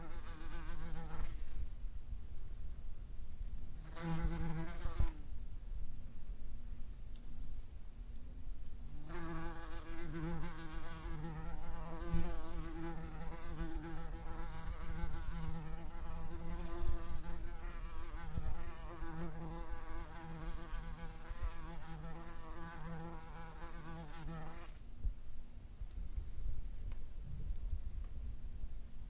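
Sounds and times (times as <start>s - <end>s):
wasp buzzing: 0.0s - 1.4s, 3.8s - 5.2s, 9.0s - 24.8s.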